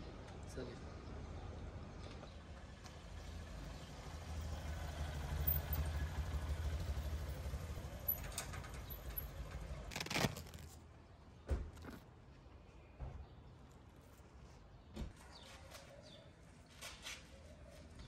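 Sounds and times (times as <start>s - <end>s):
small motorcycle engine: 3.4s - 9.9s.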